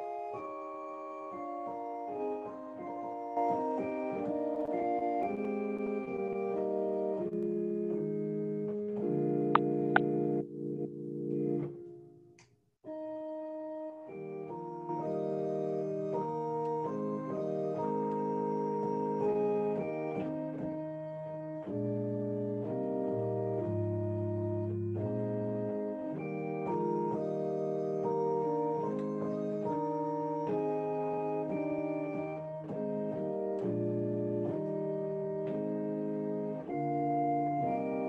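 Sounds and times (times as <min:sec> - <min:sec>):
organ playing held chords: 0:14.1 - 0:38.0.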